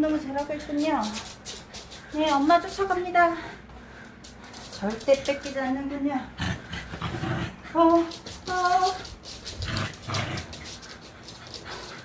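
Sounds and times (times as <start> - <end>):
dog scampering on floor: 0.0 - 3.2, 4.0 - 5.7, 7.8 - 12.0.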